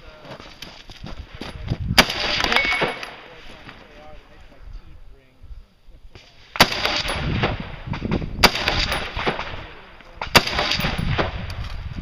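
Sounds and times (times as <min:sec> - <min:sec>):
gunshot echo: 0:02.0 - 0:03.4, 0:06.6 - 0:11.5
rifle shots: 0:02.0 - 0:03.4, 0:06.6 - 0:11.6.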